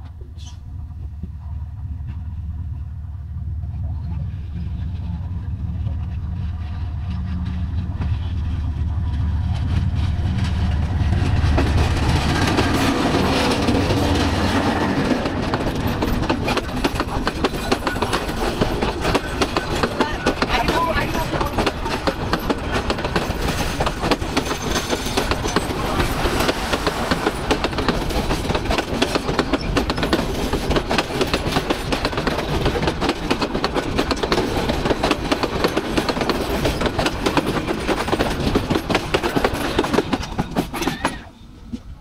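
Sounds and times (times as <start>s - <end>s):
train wheels clattering: 4.1s - 41.3s.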